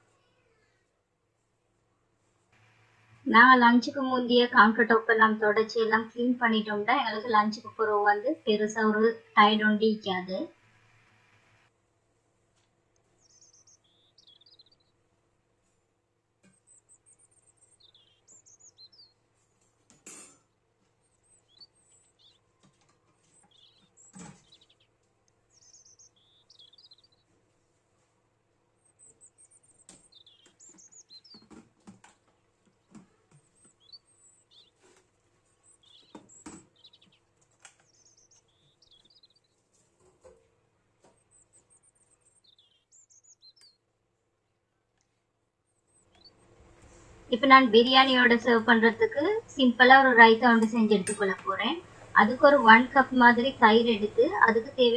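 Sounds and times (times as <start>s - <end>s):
birds chirping: 2.6s - 11.6s, 13.0s - 14.9s, 16.6s - 19.2s, 21.0s - 27.3s, 28.8s - 40.3s, 41.1s - 43.8s, 45.9s - 54.9s.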